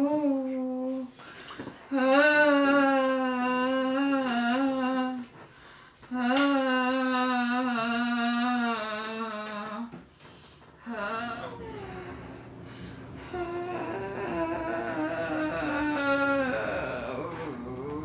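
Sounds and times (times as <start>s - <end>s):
woman vocalizing low tones: 10.8s - 18.0s.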